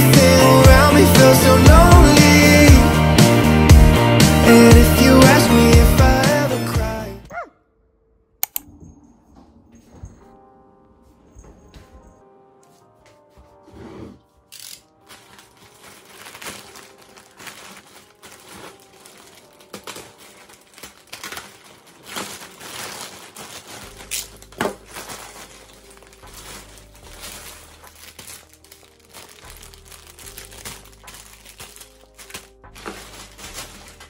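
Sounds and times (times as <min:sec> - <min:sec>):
plastic wrapping crinkling: 0:14.8 - 0:34.0.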